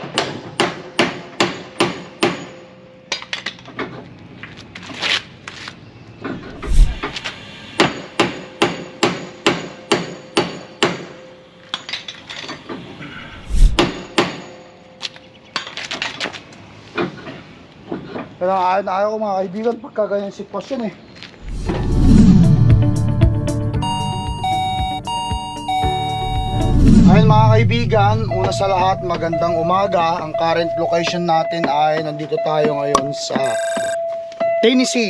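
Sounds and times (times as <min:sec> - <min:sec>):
hammer striking steel: 0:00.0 - 0:03.2, 0:07.8 - 0:11.9, 0:13.8 - 0:14.6.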